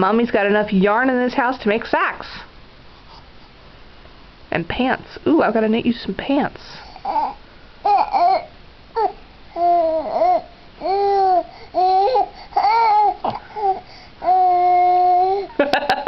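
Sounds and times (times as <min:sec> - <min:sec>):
baby babbling: 0:07.0 - 0:15.5.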